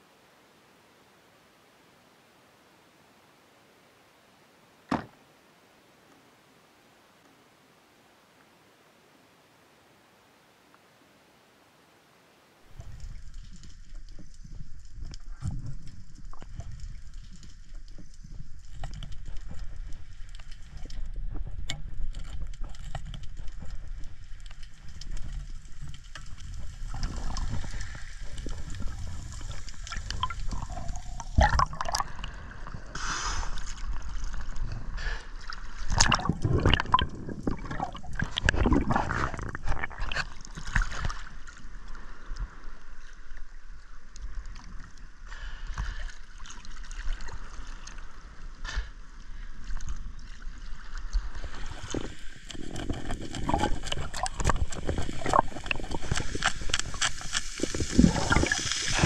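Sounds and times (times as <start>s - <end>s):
sea water gurgling and sloshing: 12.6s - 59.0s
water splashes: 12.6s - 59.0s.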